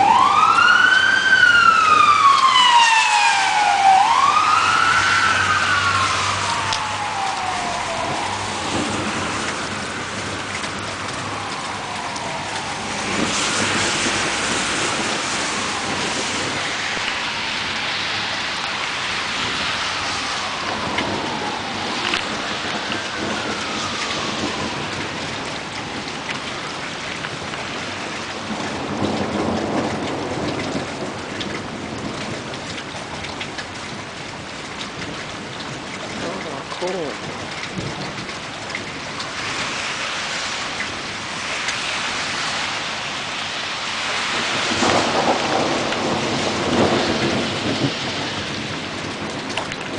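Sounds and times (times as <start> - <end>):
low thunder rolls: 0.0 - 40.0, 40.6 - 49.9
distant siren wailing: 0.0 - 49.9
steady rain: 0.0 - 49.9.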